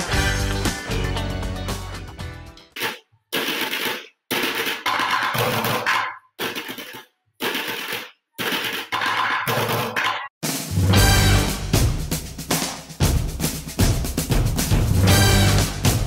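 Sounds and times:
music: 0:00.0 - 0:02.8, 0:10.4 - 0:16.0.

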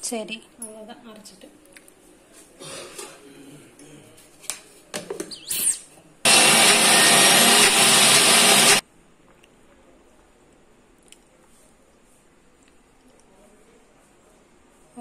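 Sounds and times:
electric mixer grinder running: 0:06.3 - 0:08.8.

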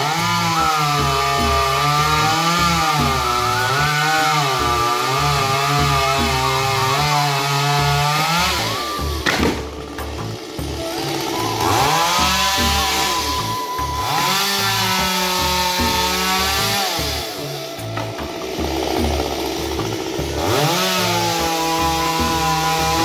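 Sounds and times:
sharp wood crack: 0:00.0 - 0:13.2
chainsaw cutting wood: 0:00.0 - 0:23.0.

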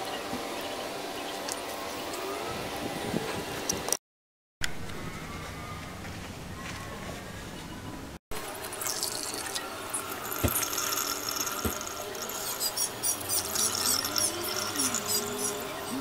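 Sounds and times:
liquid trickling into glass jar: 0:08.6 - 0:15.9.

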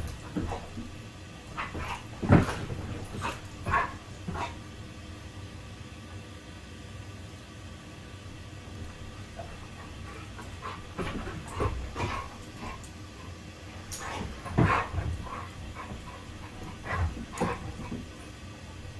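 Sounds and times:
dogs making play noises: 0:00.0 - 0:04.7, 0:08.8 - 0:18.9.

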